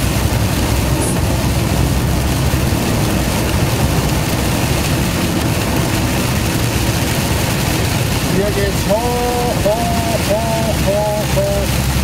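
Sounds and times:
diesel engine running: 0.0 - 12.0
tyres hissing on wet road: 0.0 - 12.0.

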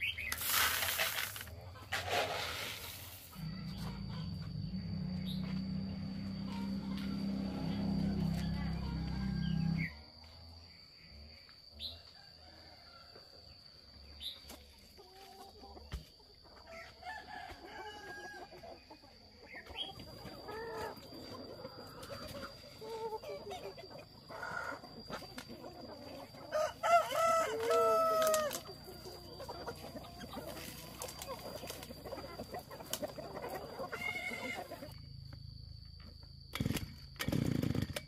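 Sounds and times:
chickens clucking: 0.0 - 10.2, 11.2 - 35.0
rooster crowing: 3.4 - 10.2, 16.7 - 18.6, 26.5 - 29.6.

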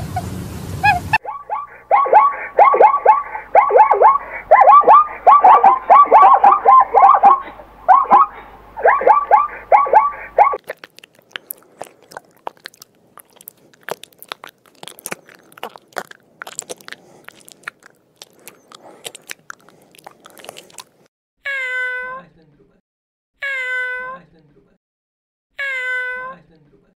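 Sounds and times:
short pitched animal calls: 0.9 - 10.6
snail crunching on leaf: 10.6 - 21.1.

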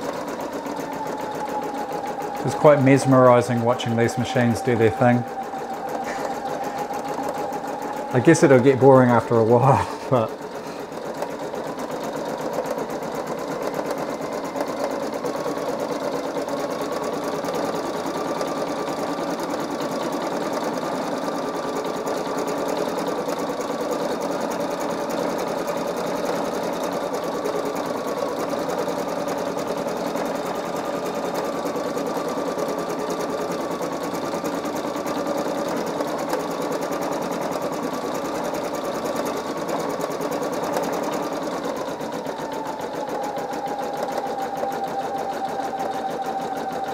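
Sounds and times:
embroidery machine stitching: 0.0 - 46.9
faint wavering tone: 0.6 - 10.0, 42.0 - 46.9.

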